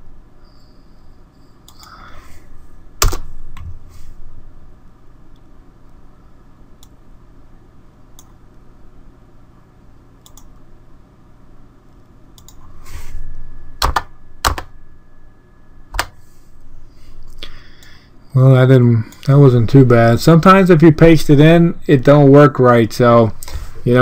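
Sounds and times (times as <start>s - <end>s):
low hum: 0.0s - 24.0s
keyboard keys clicking: 13.8s - 14.7s, 15.9s - 16.1s.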